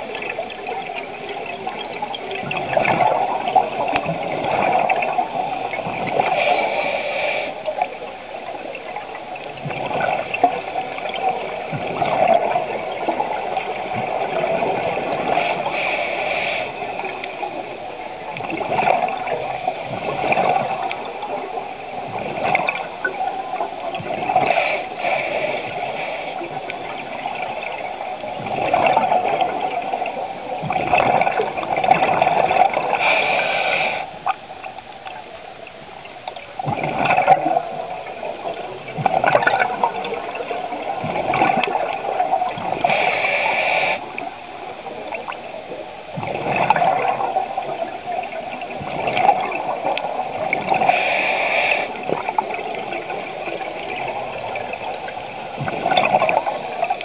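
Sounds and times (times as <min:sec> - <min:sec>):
exhaled air bubbling underwater: 0:00.0 - 0:57.0
regulator breath hissing: 0:33.0 - 0:34.2, 0:50.8 - 0:52.0.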